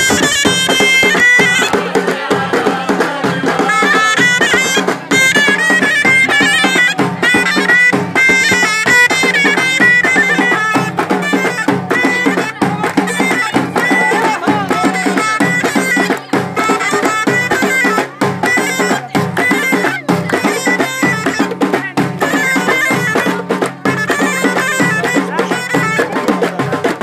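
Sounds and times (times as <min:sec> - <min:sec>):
hand drums beat: 0:00.0 - 0:27.0
shawm playing high melody: 0:00.0 - 0:27.0
hand-clapping: 0:08.4 - 0:27.0.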